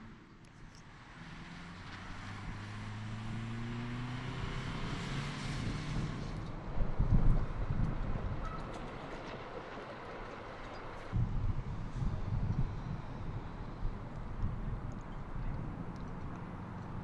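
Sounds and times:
car driving by: 0.9s - 8.9s.

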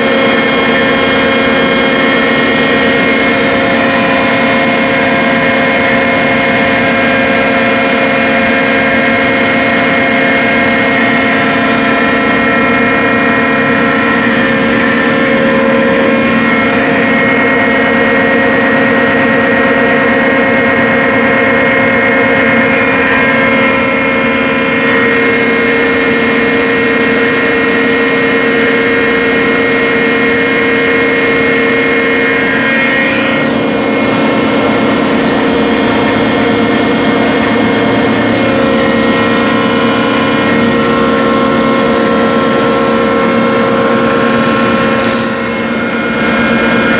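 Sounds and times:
drilling rig droning: 0.0s - 46.9s.

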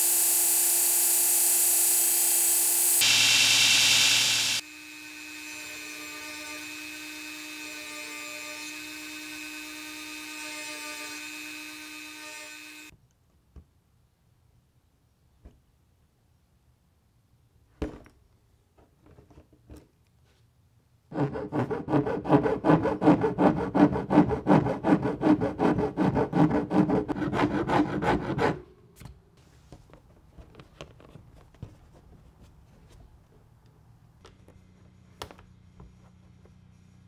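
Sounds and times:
file rasping on plastic: 21.1s - 28.6s.

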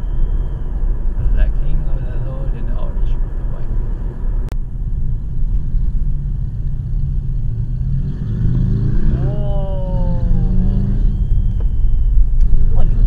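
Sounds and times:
car road and engine rumble: 0.0s - 13.0s
motorcycle engine revving: 5.7s - 13.0s.

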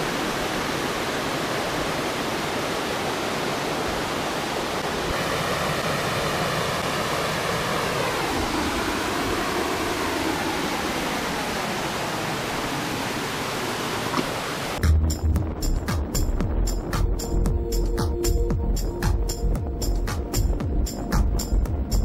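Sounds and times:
river water rushing over rocks: 0.0s - 14.8s
music with a beat: 14.8s - 22.0s.

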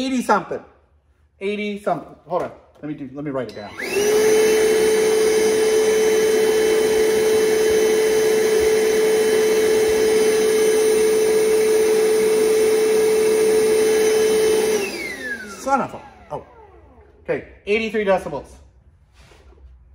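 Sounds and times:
shop vacuum motor hum and whine: 3.5s - 17.4s.

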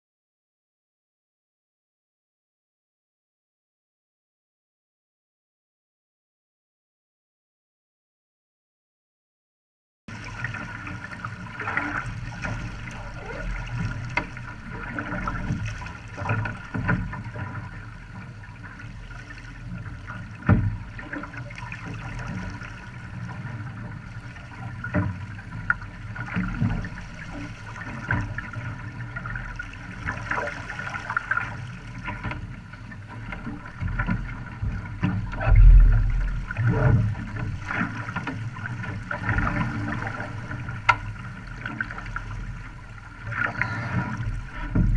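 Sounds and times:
water rushing against hull: 10.1s - 44.9s
heavy low thump: 35.2s - 37.5s, 44.6s - 44.9s.

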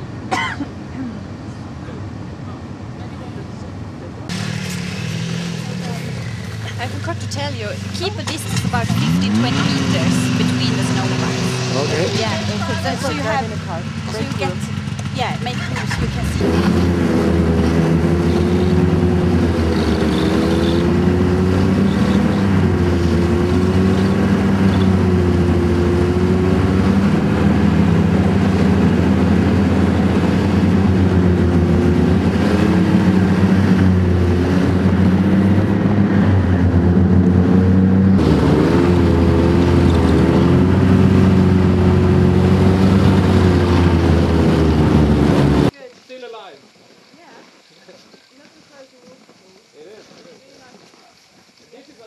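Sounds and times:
snowmobile engine running: 4.3s - 46.5s.

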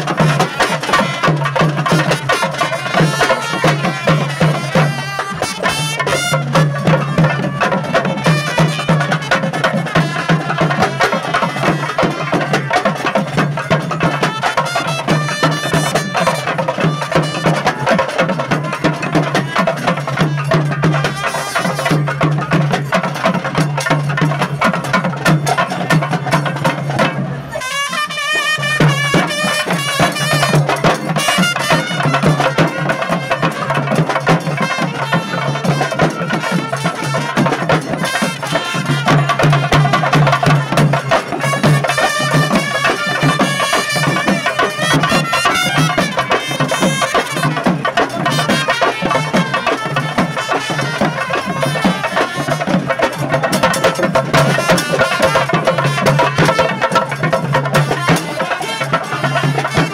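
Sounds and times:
barrel drums beaten fast: 0.0s - 59.9s
wind instrument melody: 0.0s - 59.9s.

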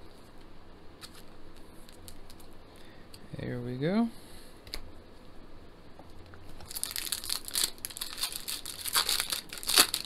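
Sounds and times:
foil wrapper crinkling and tearing: 6.6s - 10.0s.

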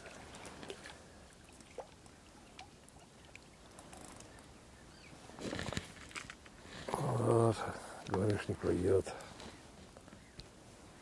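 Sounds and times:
small splashes of fish: 0.0s - 3.5s.

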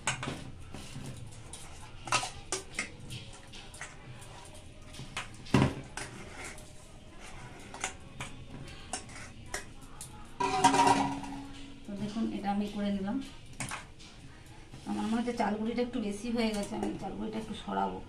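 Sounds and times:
steel bowls clinking together: 10.4s - 11.9s.

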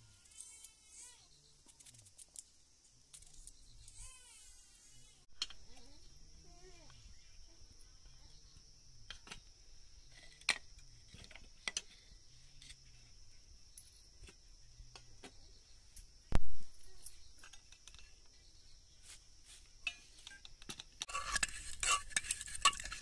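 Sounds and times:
high-pitched insect drone: 0.0s - 2.2s, 3.2s - 10.4s.

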